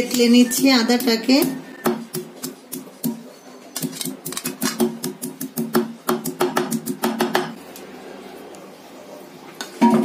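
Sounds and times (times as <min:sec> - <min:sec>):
block pounding on stone countertop: 0:04.4 - 0:07.6.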